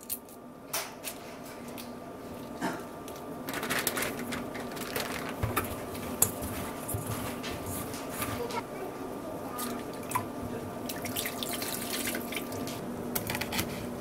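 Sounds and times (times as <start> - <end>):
prawn shells crackling and clicking: 3.0 - 6.4.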